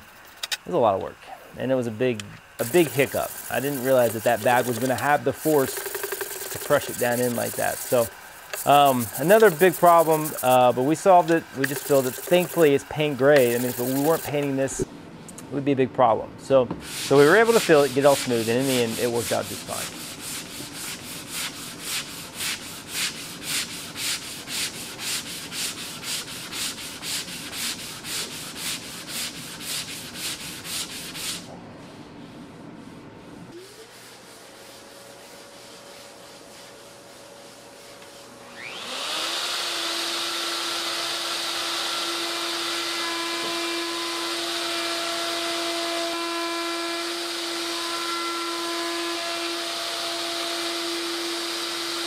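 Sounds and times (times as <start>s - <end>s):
sanding block on body filler: 2.6s - 14.8s, 16.8s - 31.5s, 33.5s - 38.4s, 39.0s - 52.0s
plunge router whining: 38.5s - 45.4s.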